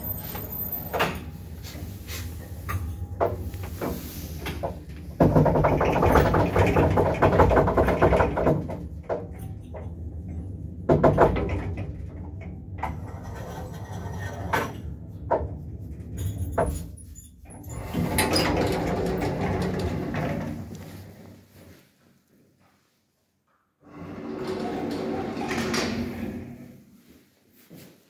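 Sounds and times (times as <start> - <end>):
elevator doors sliding open: 0.0 - 21.4, 23.8 - 26.8
elevator mechanism rattling: 2.9 - 17.0, 17.6 - 20.9, 23.9 - 26.7.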